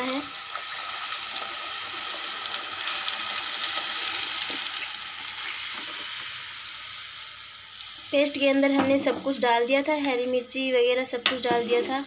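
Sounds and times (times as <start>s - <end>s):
batter pouring into hot oil: 0.0s - 8.2s.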